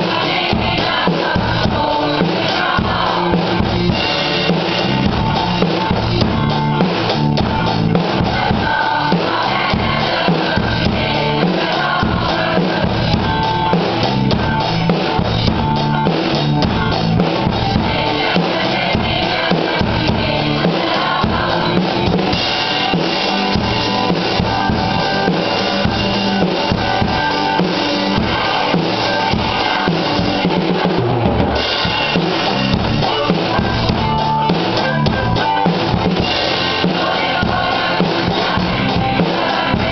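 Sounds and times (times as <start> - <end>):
drum kit playing: 0.0 - 39.9
recorded rock song: 0.0 - 39.9.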